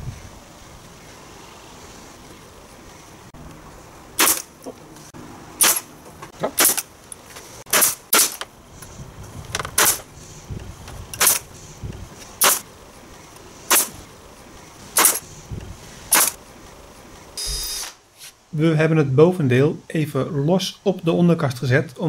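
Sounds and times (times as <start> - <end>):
nail gun firing into wood: 4.2 - 4.5, 5.6 - 5.9, 6.6 - 6.9, 7.7 - 8.4, 9.8 - 10.0, 11.2 - 11.4, 12.4 - 12.6, 13.7 - 14.0, 15.0 - 15.2, 16.1 - 16.4.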